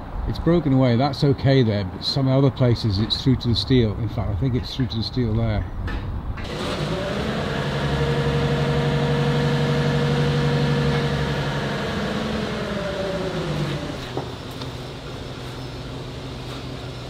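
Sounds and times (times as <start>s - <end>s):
engine running and winding down: 6.4s - 15.2s.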